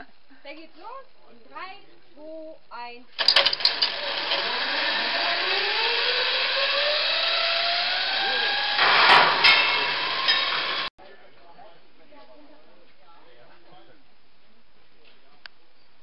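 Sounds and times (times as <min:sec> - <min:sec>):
zipline trolley clicks: 0:03.2 - 0:04.8
burst of noise: 0:03.2 - 0:10.9
trolley whine on cable: 0:03.2 - 0:10.9.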